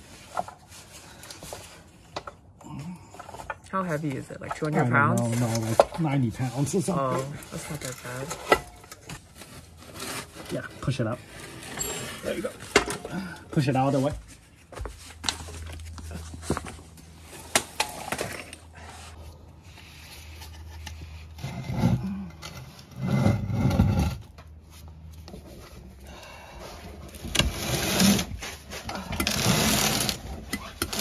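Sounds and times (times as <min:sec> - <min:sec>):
transmission scraping on cardboard: 0:27.1 - 0:31.0.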